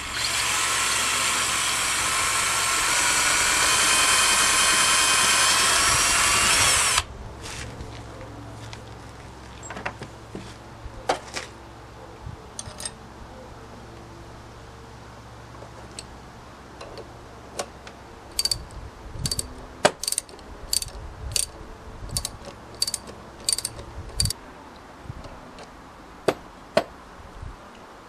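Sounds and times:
ratchet spanner clicking: 0:18.3 - 0:24.4.

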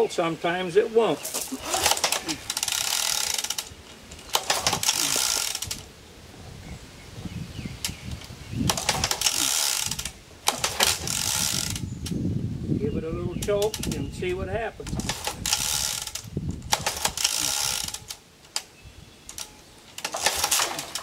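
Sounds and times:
recoil starter ratcheting clatter: 0:01.2 - 0:05.9, 0:08.7 - 0:11.9, 0:14.8 - 0:18.7, 0:19.3 - 0:21.0.

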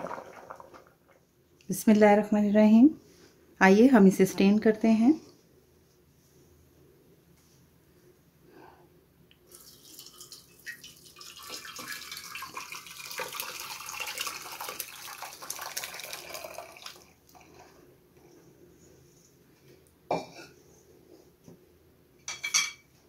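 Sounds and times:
syrup splashing and trickling: 0:09.5 - 0:17.1.

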